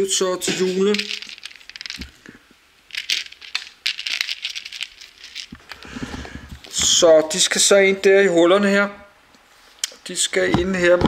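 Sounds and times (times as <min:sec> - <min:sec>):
plastic toy bricks clicking and rattling: 0:00.9 - 0:02.2, 0:02.9 - 0:05.6.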